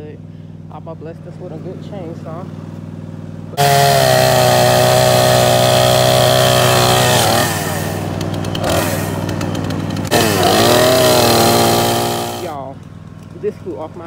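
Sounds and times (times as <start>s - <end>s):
chainsaw running: 3.6s - 13.3s.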